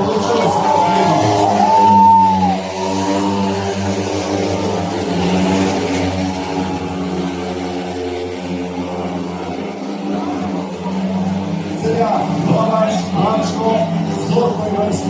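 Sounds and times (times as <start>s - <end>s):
motorcycles racing engine drone: 0.0s - 15.0s.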